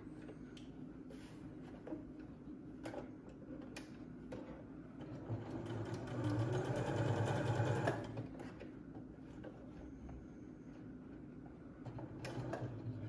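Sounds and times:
sewing machine stitching: 0:05.0 - 0:08.3.

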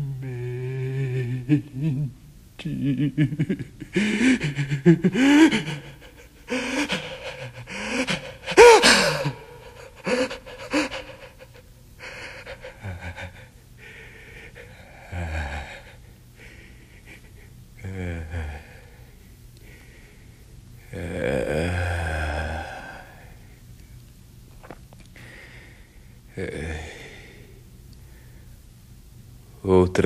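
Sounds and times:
gasps and breathy cries: 0:03.9 - 0:13.6.

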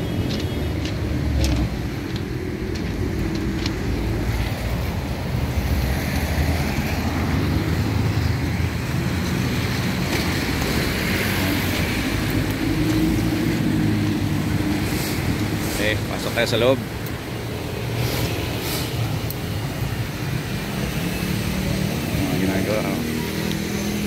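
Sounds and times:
rumble of vehicles: 0:00.0 - 0:24.0
tyre hiss on wet road: 0:08.8 - 0:22.1.

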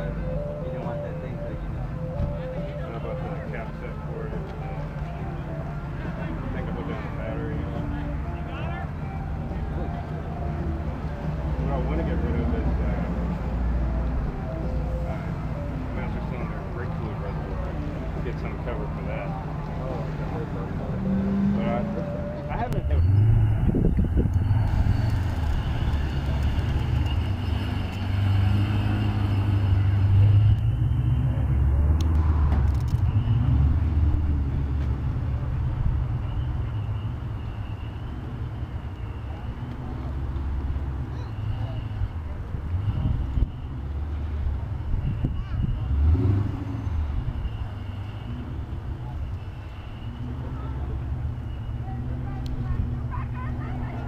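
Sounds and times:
car engine and deep exhaust: 0:00.0 - 0:54.0.

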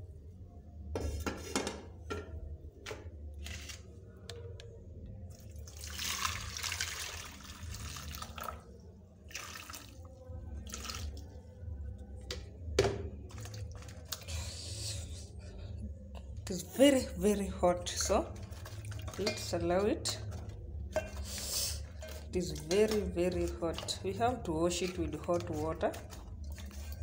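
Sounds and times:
water splashing into bowl: 0:05.3 - 0:11.4, 0:12.8 - 0:14.2, 0:17.9 - 0:27.0
metal pot and bowl clinking: 0:17.9 - 0:27.0.

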